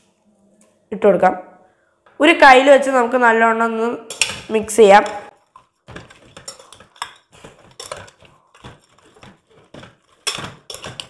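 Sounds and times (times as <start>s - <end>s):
metal spoon scraping pot: 4.1s - 11.0s.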